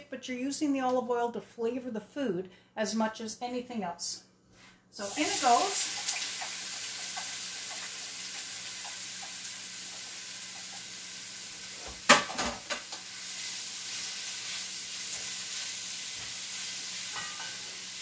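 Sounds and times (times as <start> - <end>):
peppers sizzling in oil: 5.0 - 18.0.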